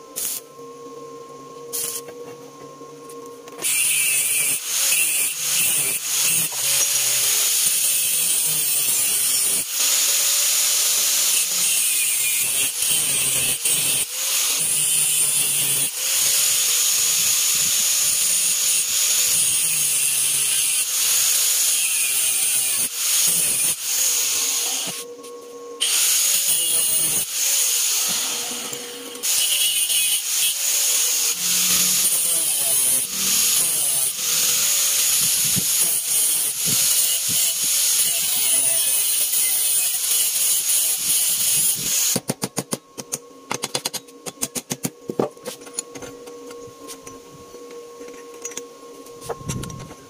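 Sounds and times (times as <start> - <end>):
grinder motor free-running whine: 0.0 - 42.2
angle grinder cutting steel pipe: 3.6 - 25.1, 25.8 - 42.2.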